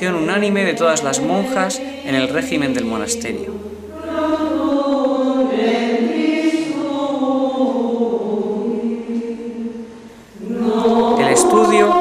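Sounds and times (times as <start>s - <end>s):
choir singing slow chant: 0.0s - 12.0s.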